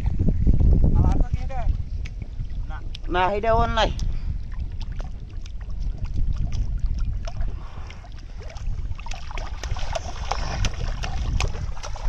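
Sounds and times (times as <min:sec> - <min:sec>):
low rumble: 0:00.0 - 0:12.0
fish splashing in water: 0:04.4 - 0:12.0.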